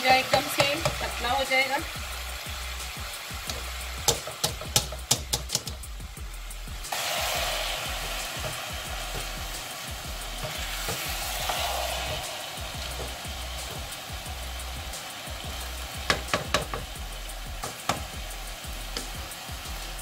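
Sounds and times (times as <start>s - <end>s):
utensil knocking against a pot: 0.0s - 1.1s, 3.5s - 5.8s, 16.0s - 16.9s, 17.6s - 18.1s
steady sizzle: 0.0s - 20.0s.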